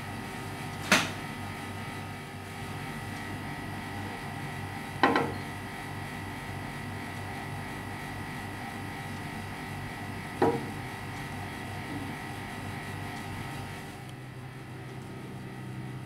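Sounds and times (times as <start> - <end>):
pan knocking on burner grate: 10.4 - 10.8.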